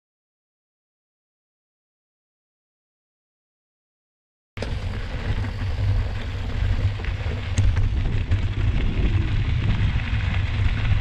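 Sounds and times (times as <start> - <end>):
tyres crunching on gravel: 4.6 - 11.0
wind buffeting microphone: 4.6 - 11.0.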